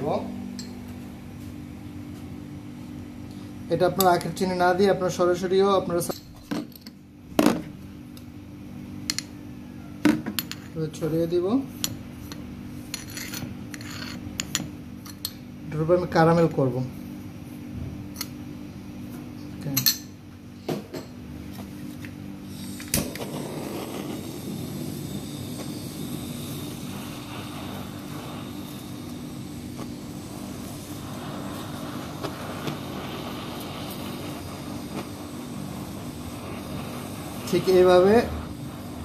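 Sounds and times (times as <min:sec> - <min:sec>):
blowtorch flame hissing: 0:00.0 - 0:00.4, 0:22.4 - 0:39.0
blowtorch igniter clicks: 0:22.6 - 0:38.8.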